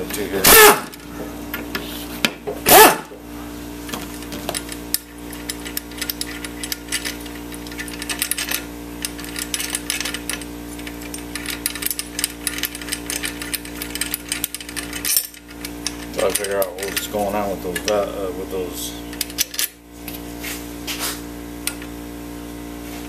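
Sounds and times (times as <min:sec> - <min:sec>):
power driver whirring: 0:00.0 - 0:01.8
steel bolts clinking: 0:03.9 - 0:18.1, 0:19.1 - 0:19.8.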